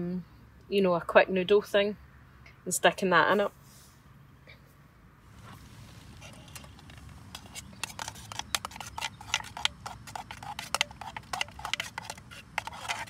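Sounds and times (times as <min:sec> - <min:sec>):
spoon scraping metal cup: 0:06.1 - 0:13.0.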